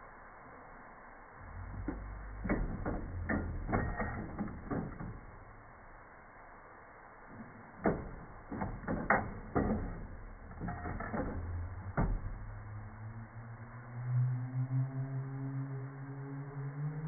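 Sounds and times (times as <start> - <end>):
low steady tone: 0.0 - 17.0
cassette deck mechanism clunking: 7.8 - 12.4.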